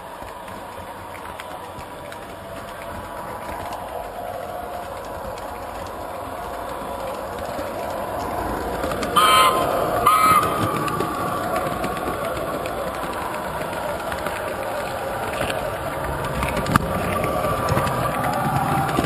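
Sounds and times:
model train rolling rumble: 0:00.0 - 0:19.0
train horn blasts: 0:09.2 - 0:11.2.

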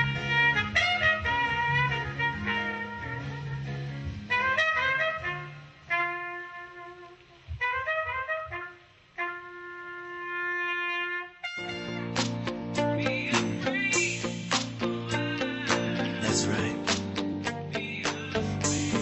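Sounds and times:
wind instrument melody: 0:00.0 - 0:13.0
second piece of music: 0:11.5 - 0:19.0.

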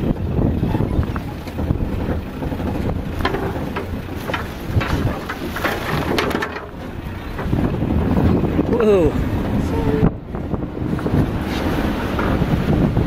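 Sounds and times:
vehicle rumbling on dirt track: 0:00.0 - 0:13.0
wind buffeting microphone: 0:00.0 - 0:13.0
knocks and rattles: 0:01.4 - 0:08.3.

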